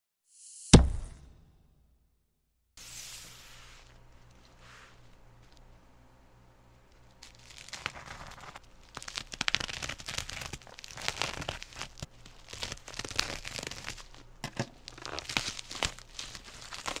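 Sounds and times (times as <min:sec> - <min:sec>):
plastic crinkling and crackling: 0:06.7 - 0:17.0
scissors cutting bubble wrap: 0:07.0 - 0:17.0.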